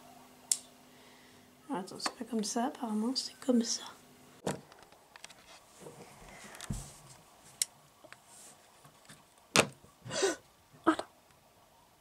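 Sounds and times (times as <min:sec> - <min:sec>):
soft rustling: 0:05.2 - 0:07.6, 0:08.2 - 0:09.4.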